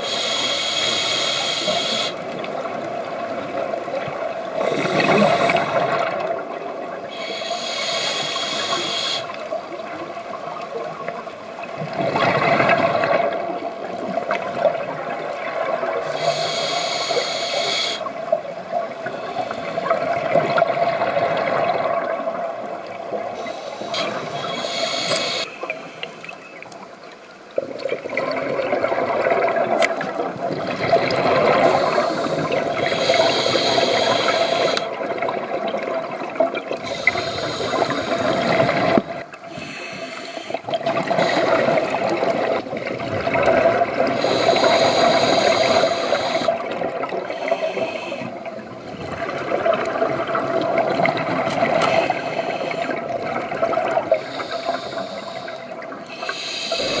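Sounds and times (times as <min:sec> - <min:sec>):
hissing inhale through regulator: 0:00.0 - 0:02.3, 0:04.6 - 0:06.1, 0:07.0 - 0:09.6, 0:15.9 - 0:18.2, 0:19.0 - 0:20.4, 0:23.2 - 0:26.4, 0:31.3 - 0:35.0, 0:36.8 - 0:42.6, 0:44.0 - 0:48.6, 0:51.6 - 0:53.2, 0:54.0 - 0:57.0
faint steady hum: 0:00.0 - 0:57.0
gurgling exhaled bubbles: 0:02.2 - 0:07.4, 0:10.2 - 0:16.3, 0:18.1 - 0:25.2, 0:27.6 - 0:39.5, 0:40.5 - 0:56.0.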